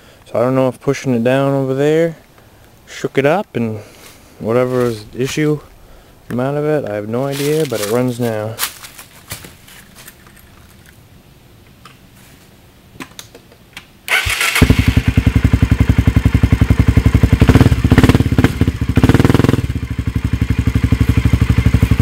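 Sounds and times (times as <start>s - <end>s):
motorcycle starter cranking: 14.1s - 15.6s
motorcycle engine idling and revving: 14.1s - 22.0s.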